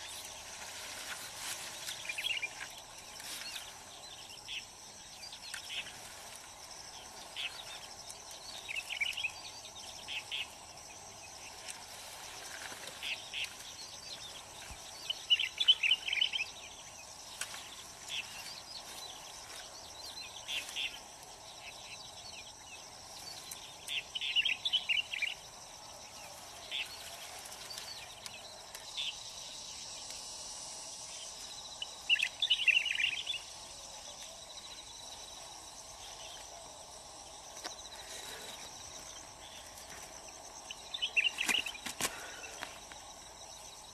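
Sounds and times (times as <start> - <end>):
insects shrilling: 0.0 - 43.9
bird chirping: 12.9 - 30.1, 31.1 - 33.6, 40.5 - 41.8.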